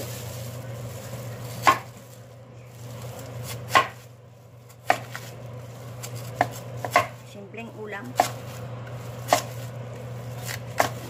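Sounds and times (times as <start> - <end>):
knife chopping on wooden board: 1.6 - 2.0, 3.5 - 4.0, 4.8 - 5.3, 6.0 - 7.2, 8.0 - 11.0.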